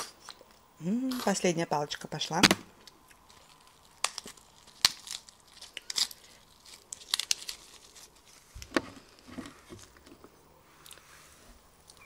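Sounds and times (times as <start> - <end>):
lettuce leaf crinkling: 2.8 - 10.2.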